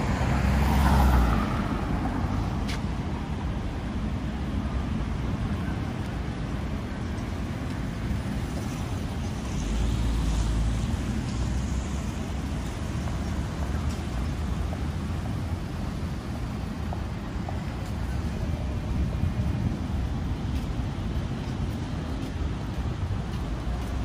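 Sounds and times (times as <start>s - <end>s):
passing cars rumbling: 0.0s - 24.0s.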